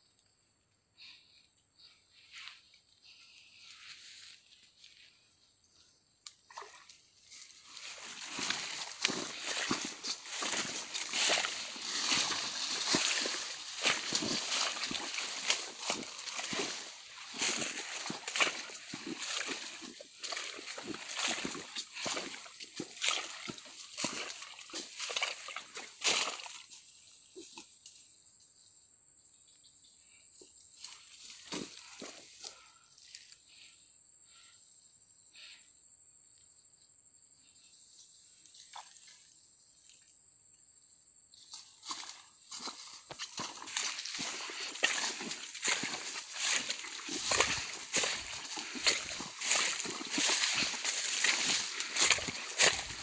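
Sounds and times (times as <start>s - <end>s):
footsteps through grass and leaves: 2.1s - 5.3s, 6.5s - 28.1s, 30.7s - 33.4s, 41.4s - 53.0s
small water splashes: 6.5s - 26.8s, 43.2s - 53.0s.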